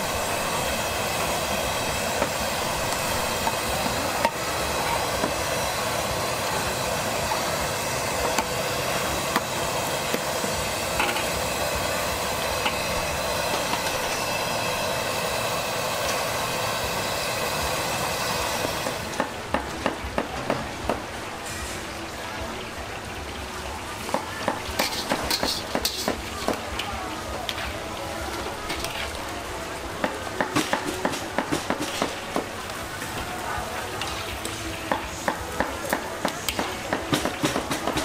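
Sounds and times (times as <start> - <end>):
food sizzling in hot oil: 0.0 - 19.4, 24.0 - 26.6.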